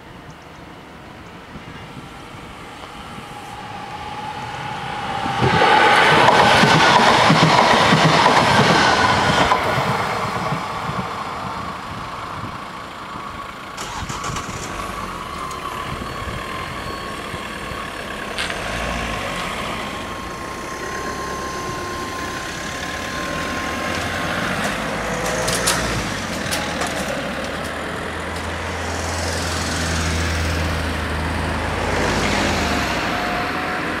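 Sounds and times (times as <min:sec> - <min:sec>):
train passing: 0:00.0 - 0:34.0
cars driving over crossing: 0:01.3 - 0:34.0
thin steady whine: 0:15.2 - 0:25.3
level-crossing barriers clicking: 0:16.7 - 0:28.6.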